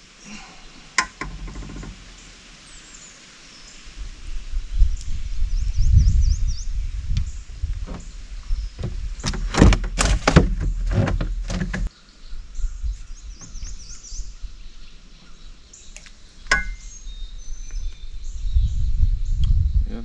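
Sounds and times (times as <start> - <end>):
birds chirping: 0.0 - 20.0
sharp knocks and thumps: 1.0 - 2.2, 7.8 - 8.2, 8.8 - 11.9, 16.5 - 16.9.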